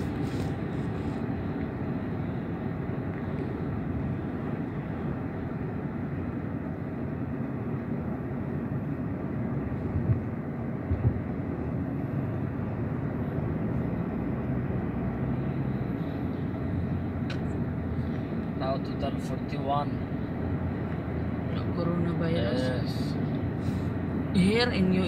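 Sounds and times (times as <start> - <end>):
car driving at highway speed: 0.0 - 25.0
low thumps: 10.9 - 11.3.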